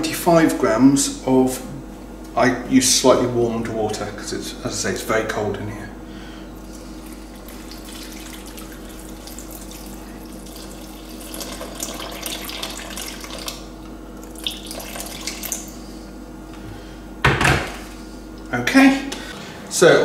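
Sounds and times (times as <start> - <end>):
water pouring into flour: 7.4 - 13.6, 14.4 - 15.7.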